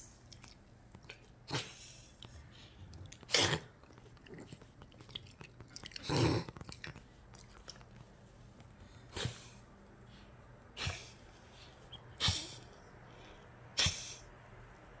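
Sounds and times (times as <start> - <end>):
small dog snorting: 5.8 - 6.9.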